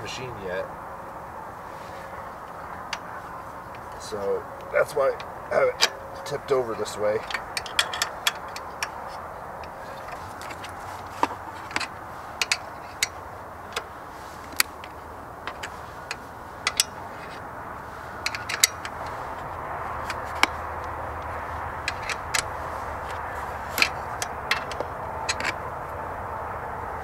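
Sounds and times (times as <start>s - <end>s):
steady background hiss: 0.0s - 27.0s
hands clicking on fittings: 7.2s - 17.5s, 18.1s - 25.8s.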